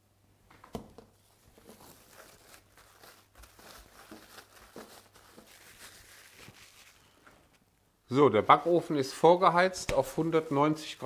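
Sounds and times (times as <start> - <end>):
cling film crinkling: 1.4 - 7.6.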